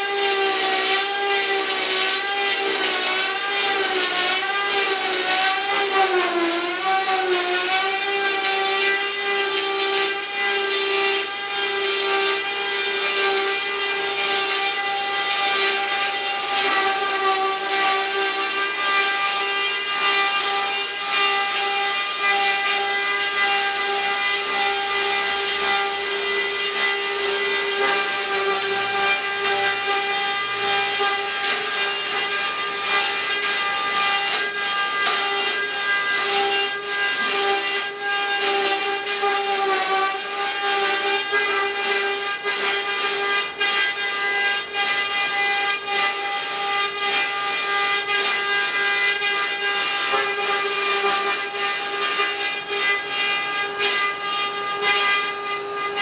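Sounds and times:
cutter head whining: 13.0s - 40.2s.

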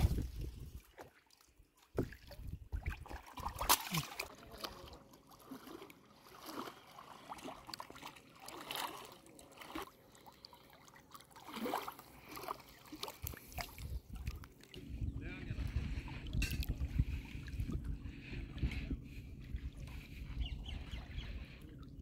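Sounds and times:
water sloshing and splashing: 0.0s - 22.0s.

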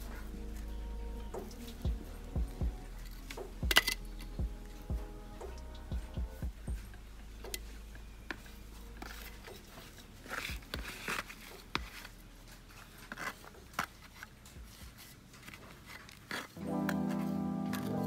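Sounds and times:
trowel scraping soil in plastic pot: 8.4s - 18.0s.

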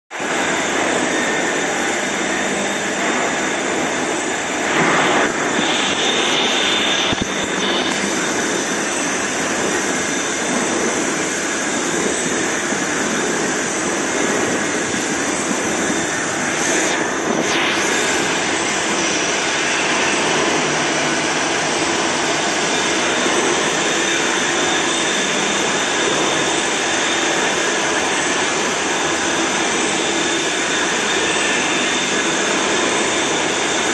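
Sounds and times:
milling machine cutting metal: 0.2s - 33.9s
coolant spraying: 2.2s - 23.8s.

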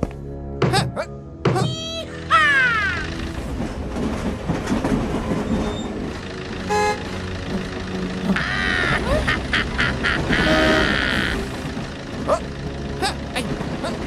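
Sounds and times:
low engine rumble: 2.1s - 14.0s
cartoon horn beeps: 10.4s - 11.3s.

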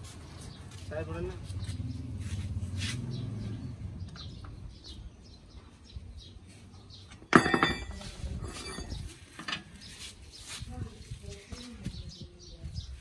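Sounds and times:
metallic clank on wheel hub: 7.2s - 9.7s.

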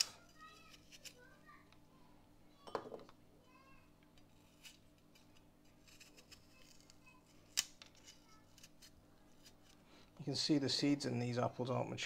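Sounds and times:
knife cutting apple: 0.0s - 1.3s, 4.4s - 9.8s.

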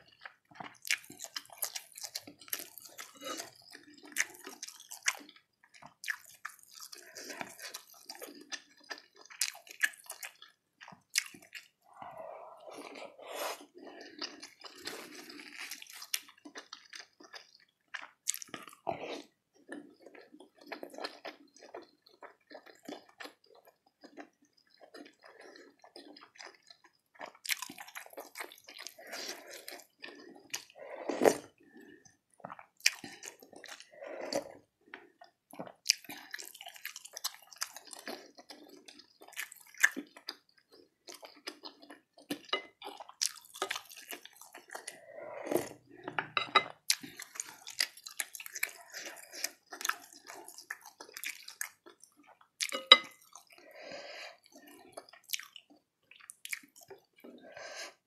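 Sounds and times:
close chewing mouth noises: 0.0s - 58.0s.

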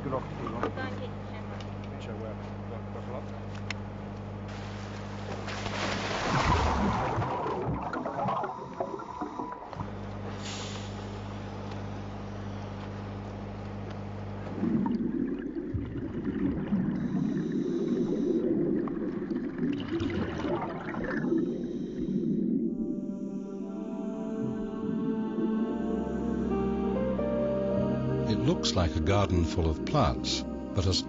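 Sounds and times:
water splashing: 4.5s - 9.8s, 14.6s - 21.7s
bubbling water rushing: 4.6s - 9.9s, 14.5s - 22.7s.

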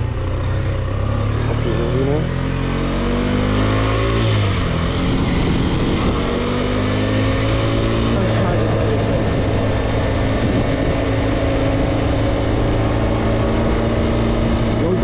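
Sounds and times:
motorcycle engine accelerating: 0.0s - 15.0s
wind rush: 4.2s - 14.8s.

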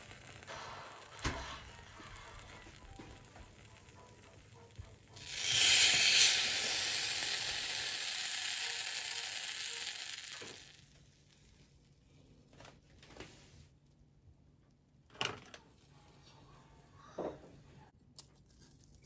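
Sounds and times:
sandwich sizzling in a pan: 0.0s - 11.3s.

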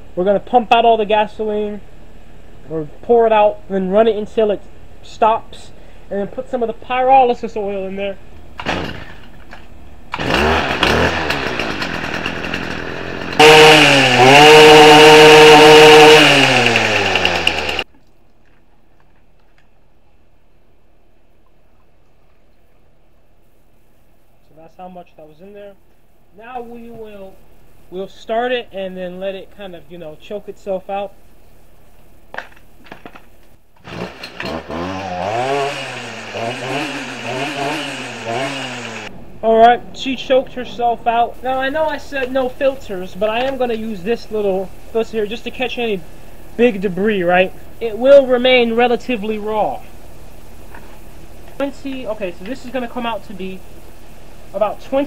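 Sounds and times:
string trimmer engine: 10.1s - 17.9s, 33.8s - 39.1s.

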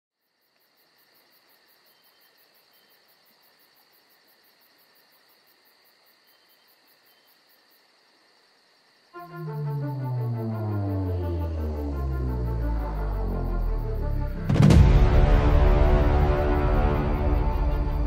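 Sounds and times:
steady high insect trill: 0.2s - 14.5s, 15.5s - 18.0s
crickets chirping: 0.2s - 18.0s.

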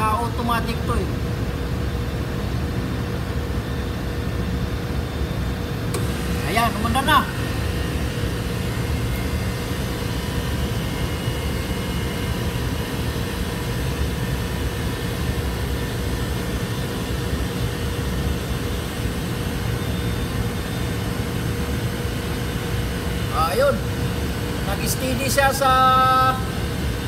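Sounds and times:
air conditioning unit humming: 0.0s - 27.0s.

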